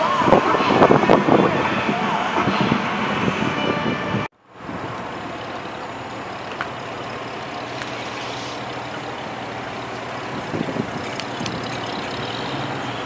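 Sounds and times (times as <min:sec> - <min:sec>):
outdoor background noise: 0:00.0 - 0:13.0
car engine idling: 0:04.5 - 0:13.0.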